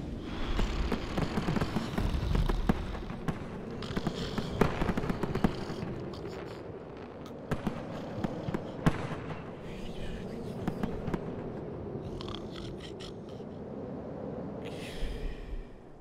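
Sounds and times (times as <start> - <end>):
firework pops and crackling: 0.5 - 6.6.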